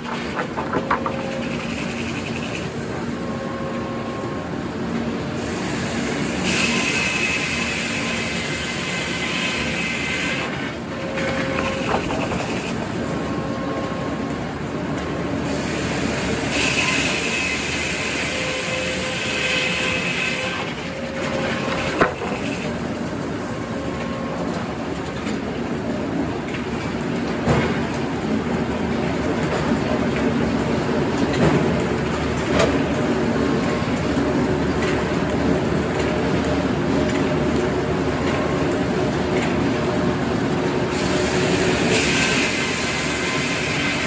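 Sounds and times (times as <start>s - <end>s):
sawmill saw running: 0.0s - 4.5s, 5.2s - 14.3s, 15.2s - 24.8s, 38.2s - 44.0s.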